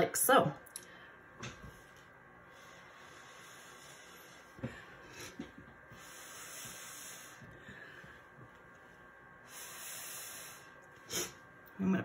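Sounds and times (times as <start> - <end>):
breath blown through a straw: 9.4 - 11.4.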